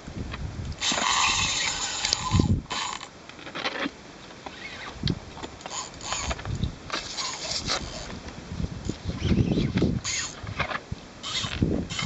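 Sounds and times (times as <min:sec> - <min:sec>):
fishing reel drag buzzing: 0:00.8 - 0:03.1, 0:05.6 - 0:08.1, 0:08.9 - 0:12.0.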